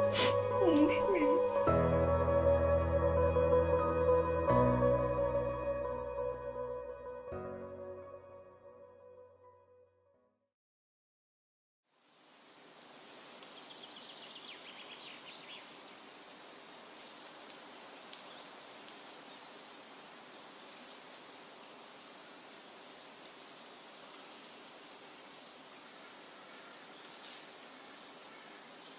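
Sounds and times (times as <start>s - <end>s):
faint ambient hiss: 0.0s - 1.7s, 11.9s - 28.9s.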